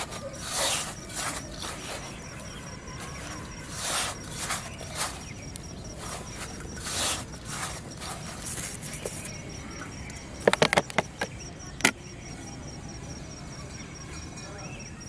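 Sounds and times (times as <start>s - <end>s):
hands squishing bait mix: 0.0s - 9.4s.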